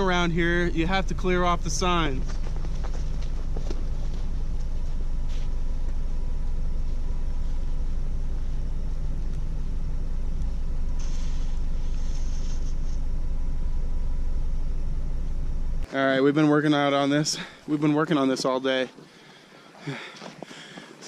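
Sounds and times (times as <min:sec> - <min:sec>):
car engine idling: 0:00.0 - 0:15.9
faint steady hum: 0:00.0 - 0:21.0.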